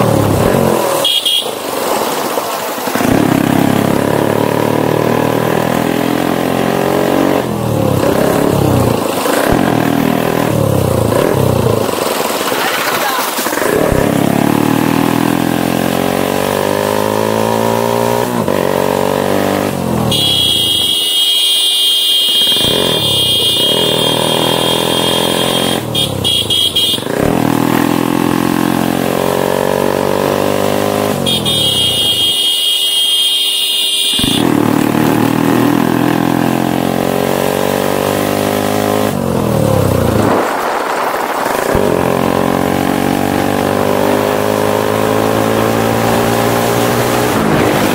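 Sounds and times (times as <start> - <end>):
motorcycle engine accelerating: 0.0 - 32.5, 34.0 - 47.9.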